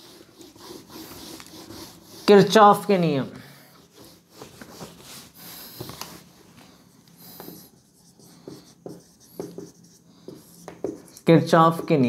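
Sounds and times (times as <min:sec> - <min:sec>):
eraser scraping whiteboard: 0:00.0 - 0:02.6, 0:03.7 - 0:06.4, 0:07.1 - 0:11.3
marker writing on whiteboard: 0:00.0 - 0:02.6, 0:07.2 - 0:12.0.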